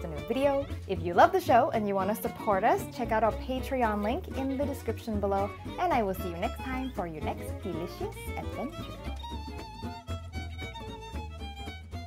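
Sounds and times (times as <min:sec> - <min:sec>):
steady bass line: 0:00.0 - 0:12.0
violin-like melody: 0:00.0 - 0:12.0.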